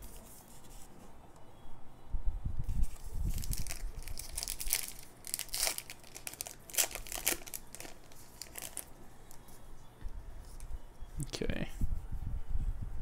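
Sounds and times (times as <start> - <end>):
wrapper tearing and crinkling: 2.9 - 8.9.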